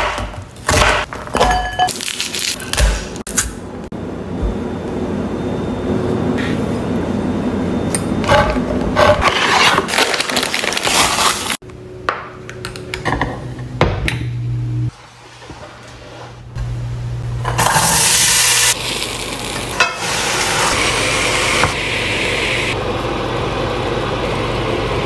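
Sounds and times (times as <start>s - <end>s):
low steady hum: 11.6s - 14.9s.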